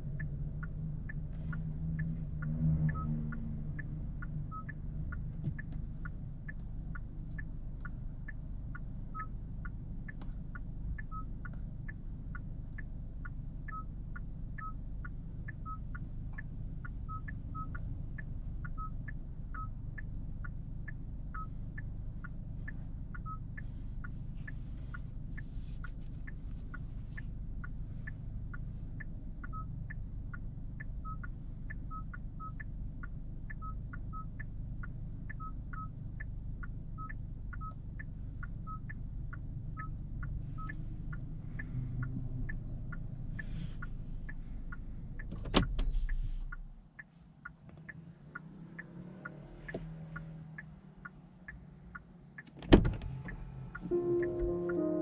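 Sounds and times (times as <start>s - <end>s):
car engine running: 0.0s - 55.0s
engine switch-off thump: 52.5s - 53.5s.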